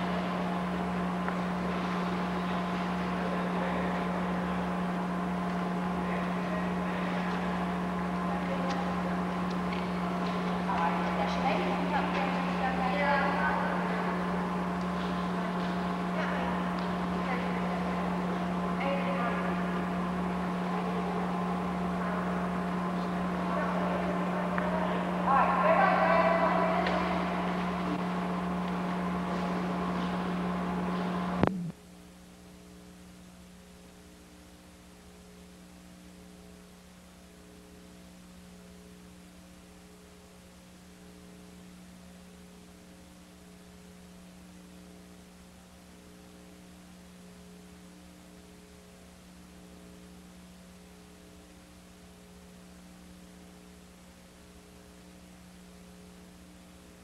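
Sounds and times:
large hall room sound: 0.0 - 57.0
steady electrical hum: 0.0 - 57.0
faint pulsing tone: 31.4 - 31.8.

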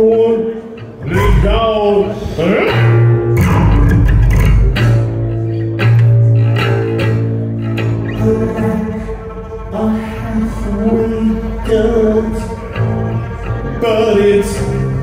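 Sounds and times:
bowed double bass: 0.0 - 15.0
sharp struck attacks: 3.4 - 4.8.

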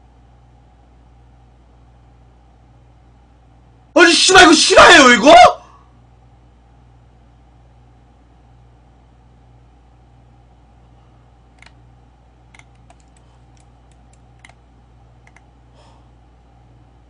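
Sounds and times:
steady low hum: 0.0 - 17.0
sharp computer clicks: 12.5 - 14.6, 15.2 - 15.5.

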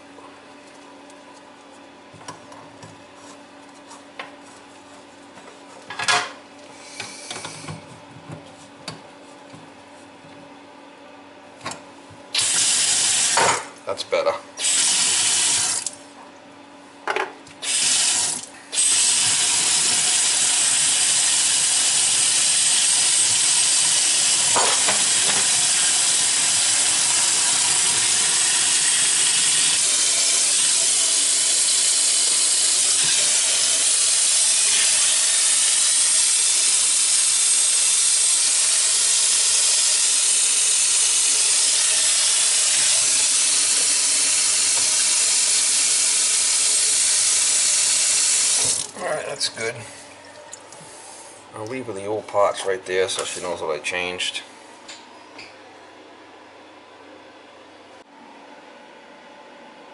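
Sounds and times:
faucet water rushing into sink: 12.4 - 13.6, 14.6 - 16.0, 17.6 - 49.0.

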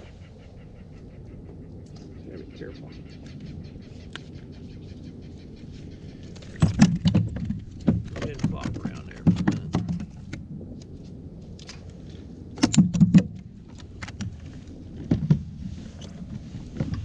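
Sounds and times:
fish knocking on plastic kayak: 6.4 - 10.4.

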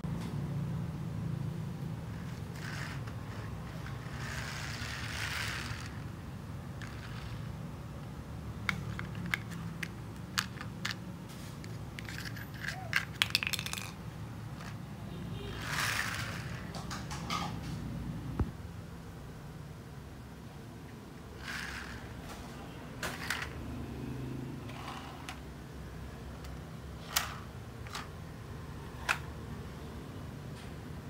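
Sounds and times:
plastic toy clicks and clacks: 8.6 - 11.0, 11.6 - 14.0, 15.6 - 17.5, 23.0 - 23.6, 27.0 - 28.1.

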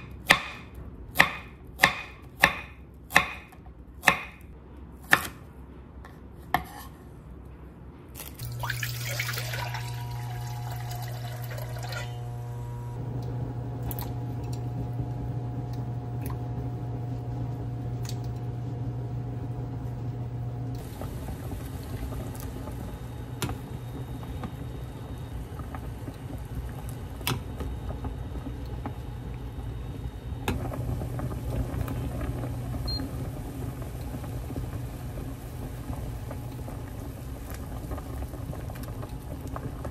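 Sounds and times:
knife chopping on wooden board: 0.3 - 4.4
steady low hum: 7.2 - 39.9
water bubbling at a boil: 8.4 - 12.2, 20.8 - 29.5, 30.5 - 39.9
water running into saucepan: 8.4 - 12.9.

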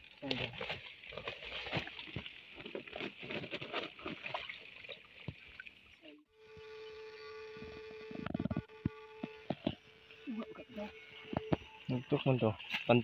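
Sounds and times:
steady hum: 6.2 - 12.6.

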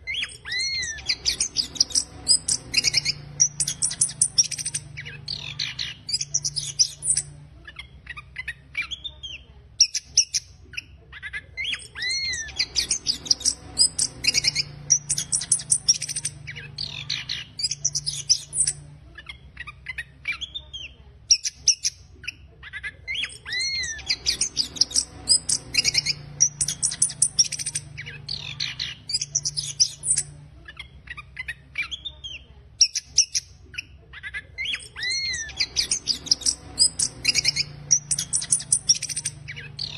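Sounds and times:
thrush twittering song: 11.8 - 18.8.

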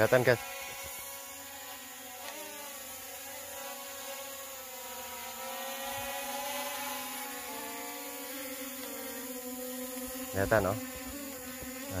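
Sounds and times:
drone propellers whirring: 0.0 - 12.0.

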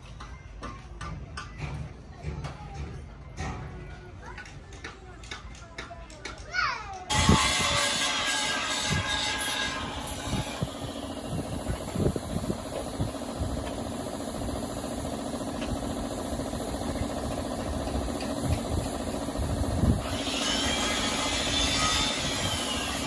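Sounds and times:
motor running: 7.1 - 23.0
spray gun air hiss: 7.1 - 23.0.

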